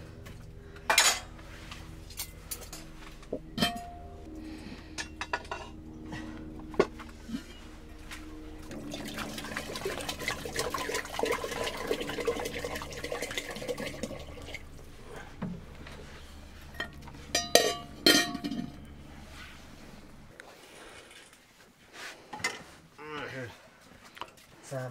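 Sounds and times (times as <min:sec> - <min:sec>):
water sloshing in cooking pot: 0:08.7 - 0:14.9
metal clanks on pot: 0:17.3 - 0:18.8.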